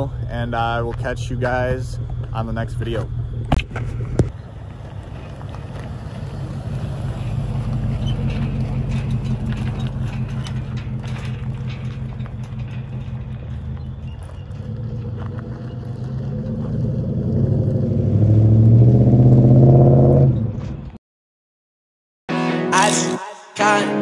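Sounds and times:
truck engine at low revs: 0.0 - 21.0
light clicks and rattles: 7.9 - 14.3.

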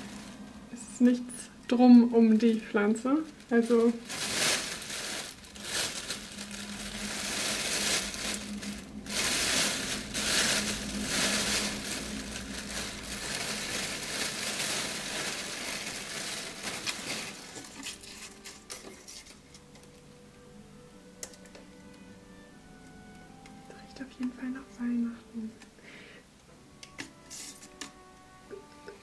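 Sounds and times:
plastic bag crinkling: 0.0 - 0.6, 2.2 - 19.8.

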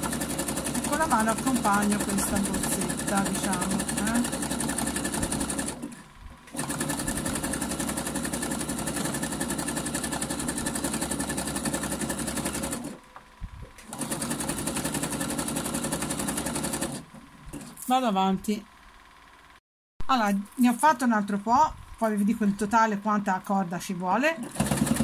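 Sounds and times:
electric sewing machine stitching: 0.0 - 13.0, 13.8 - 18.0, 24.3 - 25.0.

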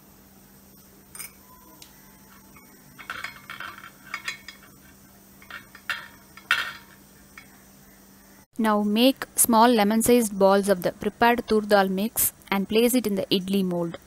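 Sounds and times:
metal spoon clinking and scraping: 1.2 - 1.5, 2.3 - 7.6.

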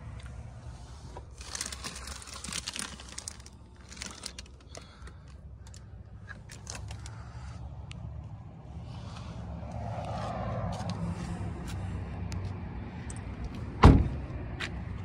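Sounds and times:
plastic seat covers crinkling: 1.3 - 4.9.

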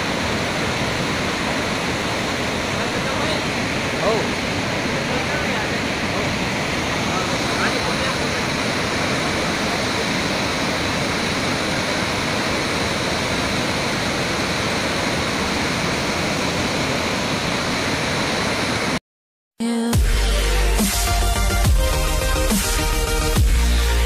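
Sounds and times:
water rushing through spillway: 0.0 - 19.0
music: 19.6 - 24.0.

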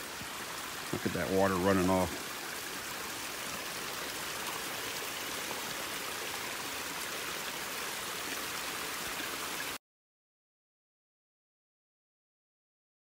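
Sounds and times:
creek water rushing: 0.0 - 9.8.

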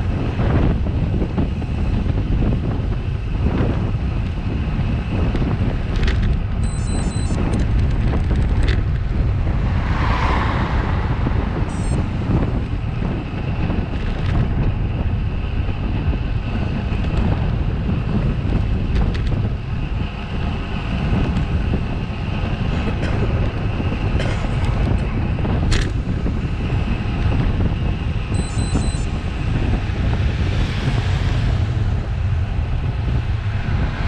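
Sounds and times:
wind rumbling on microphone: 0.0 - 34.0
bus passing: 6.6 - 18.8, 19.6 - 34.0.

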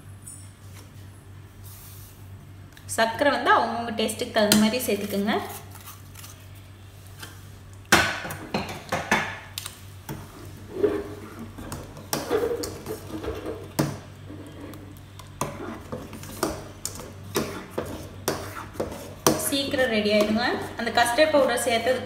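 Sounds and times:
metal spoon scraping saucepan: 10.3 - 21.9.

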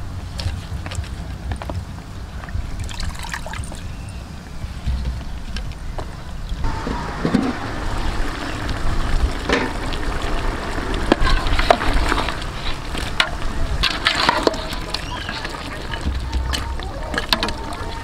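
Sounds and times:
low rumble: 3.7 - 18.0
utensil stirring and scraping pot: 11.2 - 18.0.

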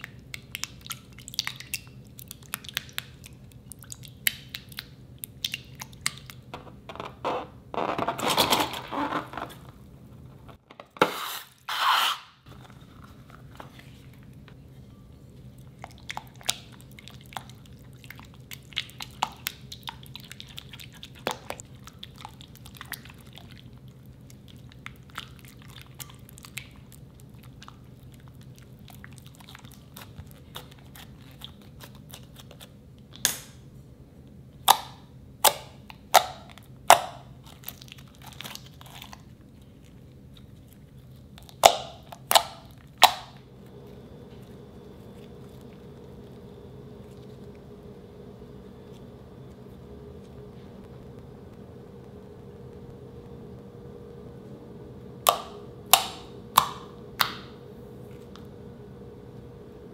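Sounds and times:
slime crackling when stirred: 0.0 - 6.5, 15.4 - 33.3, 35.8 - 43.4
faint steady hum: 0.0 - 59.9.

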